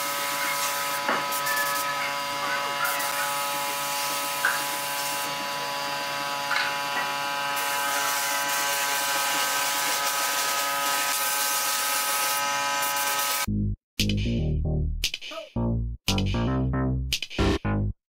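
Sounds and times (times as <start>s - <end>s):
mechanical hum: 0.0s - 13.5s
spray gun hissing: 7.6s - 13.5s.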